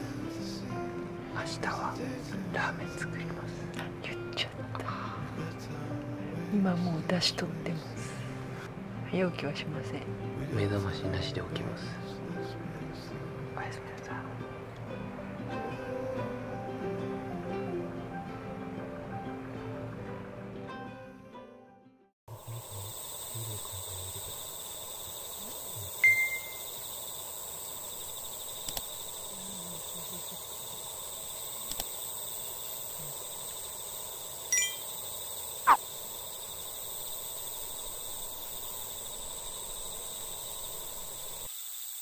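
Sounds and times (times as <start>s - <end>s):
insects chirring: 22.3s - 42.0s
short chirps: 26.0s - 26.7s
faint clicks: 28.5s - 29.0s, 31.6s - 32.0s.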